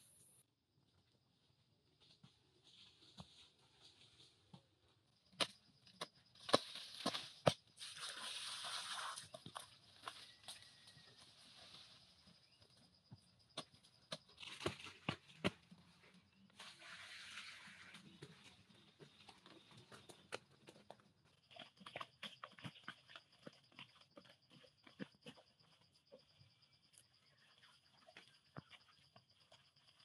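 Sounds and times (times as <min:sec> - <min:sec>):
scraping rustle in soil: 0:06.6 - 0:10.4, 0:16.5 - 0:18.5.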